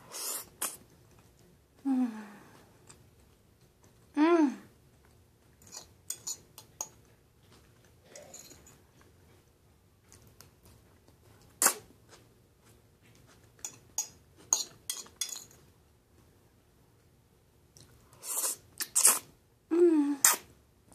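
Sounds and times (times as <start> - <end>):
mouth sounds of eating: 0.0 - 3.2, 10.1 - 15.1, 17.7 - 20.6.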